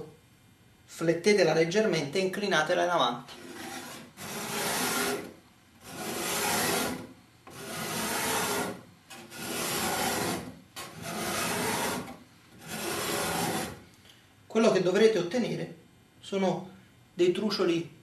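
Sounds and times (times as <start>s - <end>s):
scraper scraping wood: 3.3s - 13.8s.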